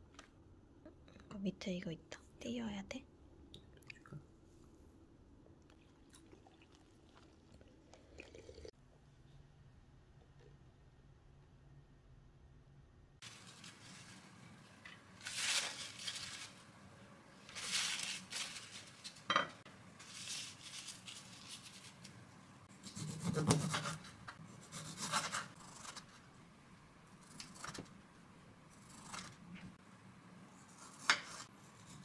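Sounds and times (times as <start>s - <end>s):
paper towel rustling: 13.2s - 14.4s, 15.2s - 16.7s, 17.4s - 19.3s, 20.0s - 22.3s.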